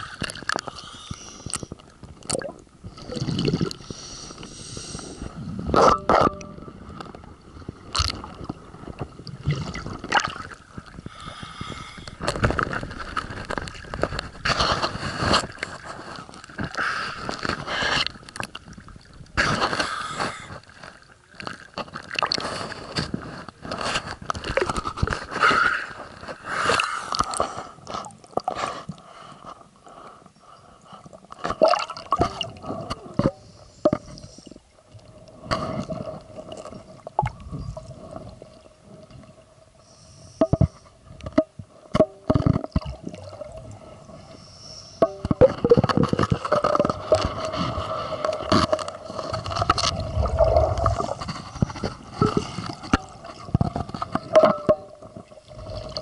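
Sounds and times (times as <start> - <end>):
water sloshing and gurgling: 0.0 - 56.0
knocks and scrapes: 12.2 - 18.4, 45.0 - 55.3.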